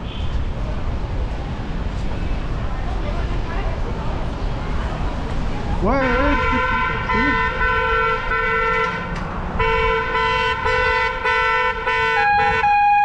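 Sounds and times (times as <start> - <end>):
low traffic rumble: 0.0 - 13.0
vehicle horn honking: 5.9 - 13.0
higher-pitched horn: 6.0 - 13.0.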